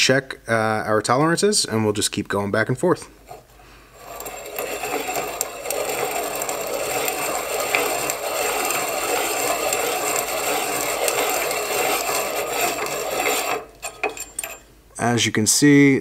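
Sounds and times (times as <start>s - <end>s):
stone grinding metal ring: 3.3s - 14.7s.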